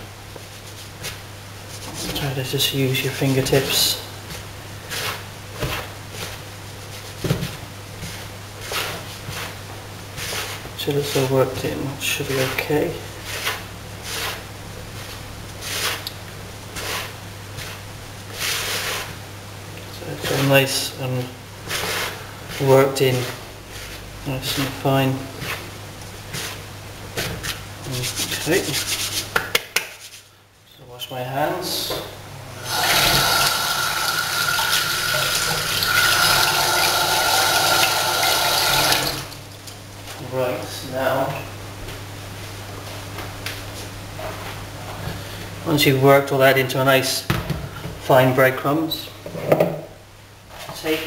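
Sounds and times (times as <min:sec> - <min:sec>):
hands washing under water: 0:32.6 - 0:39.6
tap running into a sink: 0:32.7 - 0:39.4.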